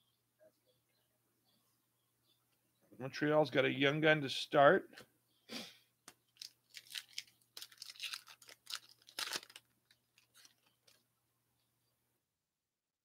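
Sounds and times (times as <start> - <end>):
foil wrapper crinkling: 6.4 - 11.0.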